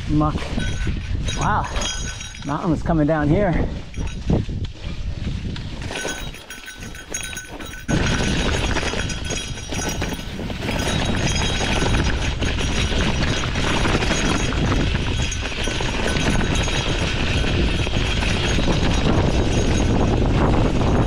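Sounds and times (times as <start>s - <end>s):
bike rattling: 0.0s - 21.0s
tyres crunching on loose stones: 5.4s - 20.4s.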